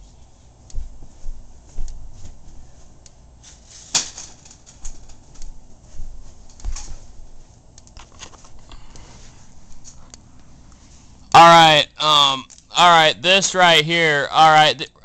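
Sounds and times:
window blinds rattling: 0:03.6 - 0:05.3.

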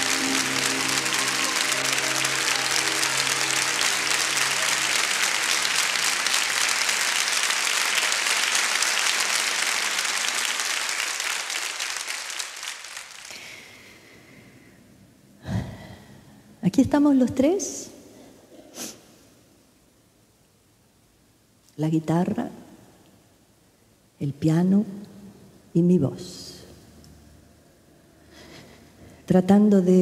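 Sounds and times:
held music chord: 0:00.0 - 0:10.2
audience applauding: 0:00.0 - 0:14.0.

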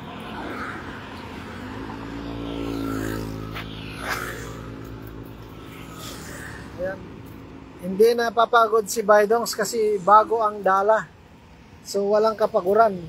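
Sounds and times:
vehicle engine passing: 0:00.0 - 0:07.6.

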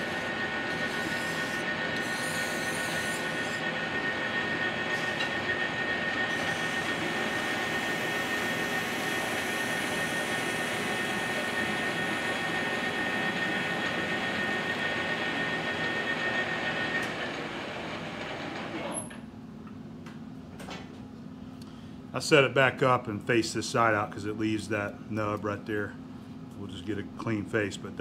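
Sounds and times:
metal lathe whining: 0:00.0 - 0:19.2.

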